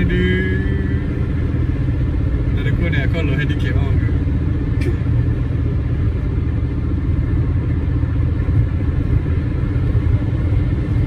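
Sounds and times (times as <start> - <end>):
car engine and tyre rumble: 0.0 - 11.0.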